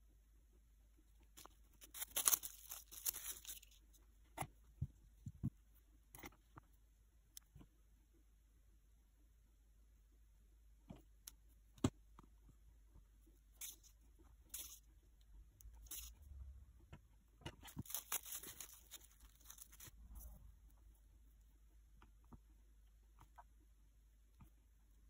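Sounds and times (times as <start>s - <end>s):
plastic wrap crinkling: 1.8s - 3.8s, 17.6s - 20.0s.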